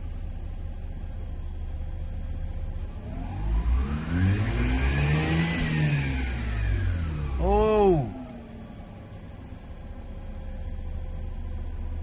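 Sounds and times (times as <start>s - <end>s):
rotary engine idling and revving: 0.0s - 12.0s.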